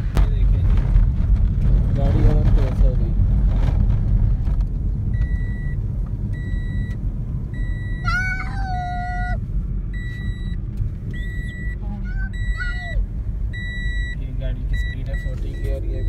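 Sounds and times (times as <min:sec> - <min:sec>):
tyres rumbling on road: 0:00.0 - 0:16.0
dashboard warning chime beeping: 0:05.1 - 0:09.3, 0:09.9 - 0:16.0
small child crying: 0:08.0 - 0:09.4, 0:12.0 - 0:13.0.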